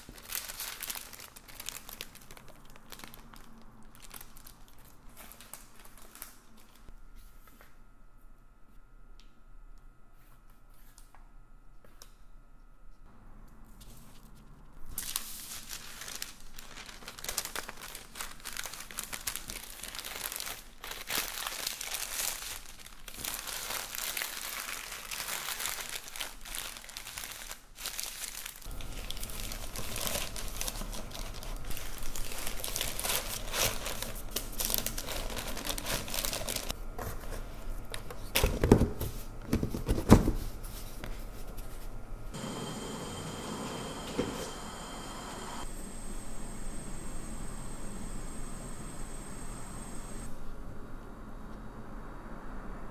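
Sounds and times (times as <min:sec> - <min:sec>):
parchment paper crinkling: 0:00.0 - 0:06.9, 0:13.9 - 0:39.2.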